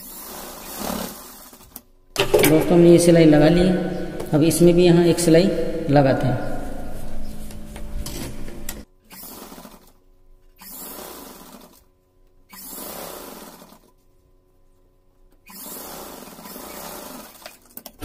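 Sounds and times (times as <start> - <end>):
sewing machine stitching: 0.0 - 2.6, 8.0 - 10.0, 10.6 - 14.0, 15.4 - 18.0.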